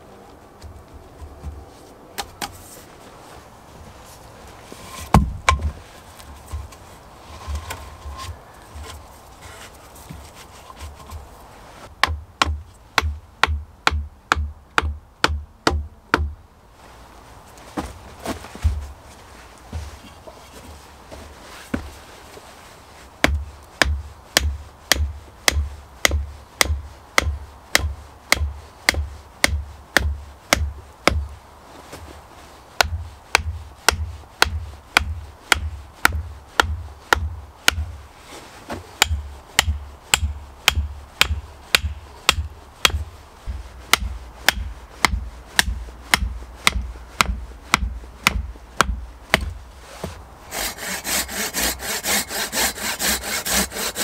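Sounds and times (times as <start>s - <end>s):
hatchet knocking wooden stakes: 5.1s - 5.8s, 12.0s - 16.3s, 23.2s - 31.3s, 32.8s - 38.0s, 39.0s - 49.6s.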